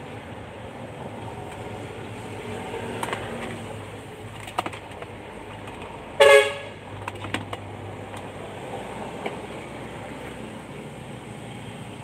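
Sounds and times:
car horn chirp: 6.2 - 6.8.

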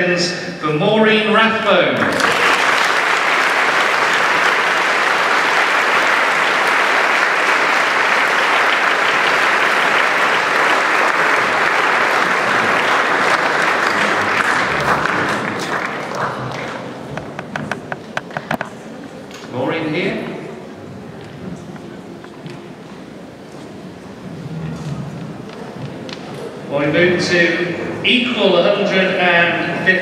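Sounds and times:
audience applauding: 2.0 - 18.0.

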